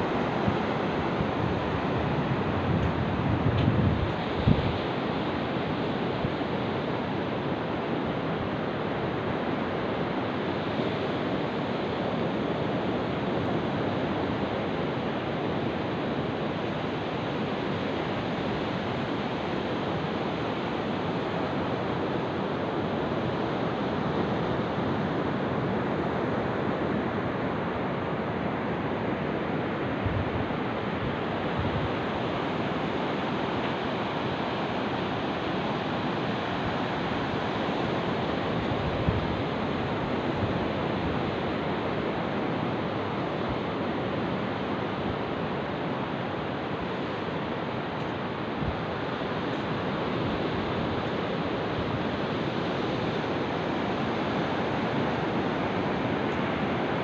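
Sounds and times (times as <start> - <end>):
wind buffeting microphone: 0.1 - 5.0.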